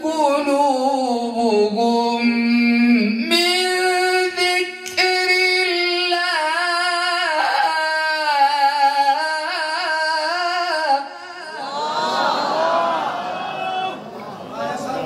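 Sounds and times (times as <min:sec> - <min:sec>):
man reciting melodically: 0:00.0 - 0:11.7.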